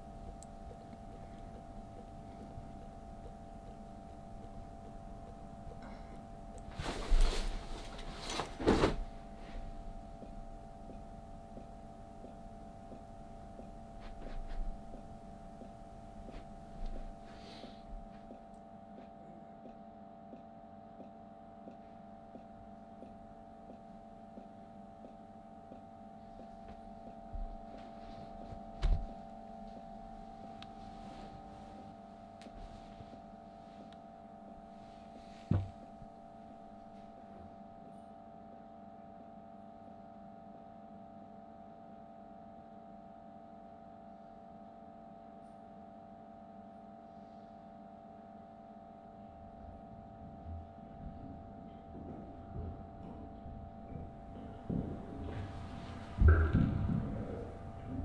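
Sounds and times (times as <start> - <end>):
steady electrical hum: 0.0 - 58.0
dull thumps: 26.7 - 29.9, 35.4 - 36.2, 53.9 - 58.0.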